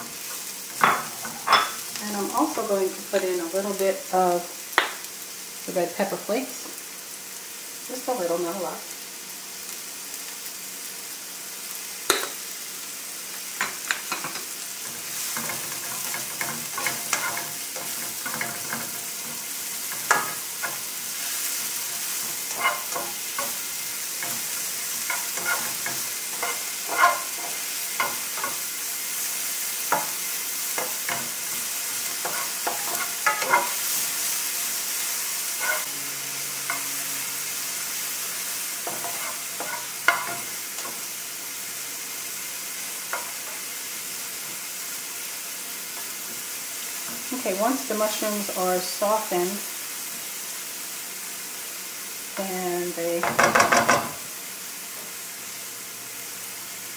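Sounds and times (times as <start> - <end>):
mushrooms sizzling in frying pan: 0.0 - 56.9
spatula scraping pan: 14.1 - 28.8, 29.8 - 34.4, 35.4 - 37.5, 38.8 - 41.1.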